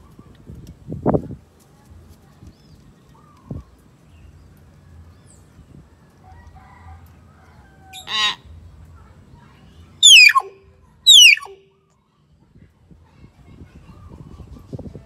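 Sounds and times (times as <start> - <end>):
faint high bird chirps: 9.7 - 12.0
bird call of stacked tones: 10.0 - 11.6
bird whistled note: 10.0 - 11.6.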